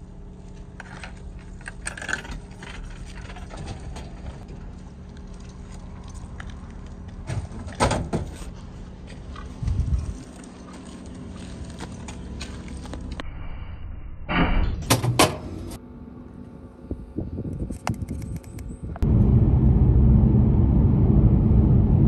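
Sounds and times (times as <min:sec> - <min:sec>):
steady low hum: 0:15.1 - 0:22.0.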